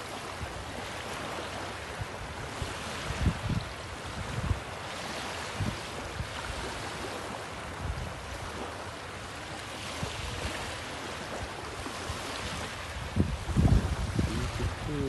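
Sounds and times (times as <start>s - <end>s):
small waves surf hiss: 0.0s - 15.0s
wind thumps on microphone: 2.6s - 4.6s, 5.6s - 6.4s, 12.6s - 15.0s.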